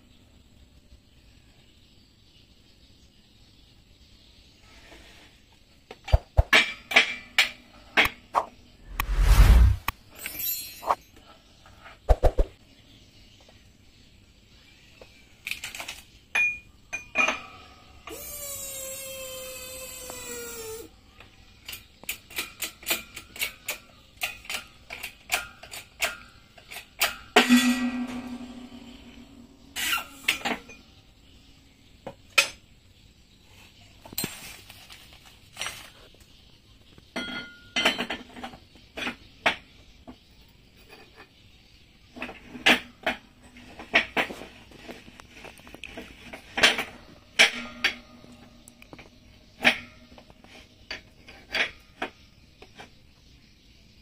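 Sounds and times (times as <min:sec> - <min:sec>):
metal parts clinking on workbench: 0:10.2 - 0:11.2
loud ringing metal clang: 0:27.4 - 0:29.5.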